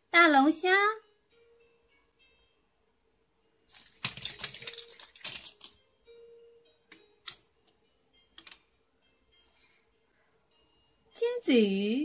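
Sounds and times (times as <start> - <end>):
faint background music: 0.0 - 12.0
plastic toy pieces clattering: 3.7 - 5.8.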